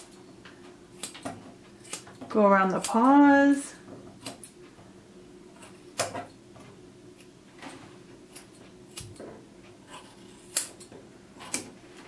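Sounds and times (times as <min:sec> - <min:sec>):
scissors snipping hair: 0:01.0 - 0:03.2, 0:04.2 - 0:04.6, 0:08.3 - 0:09.2, 0:09.9 - 0:11.7.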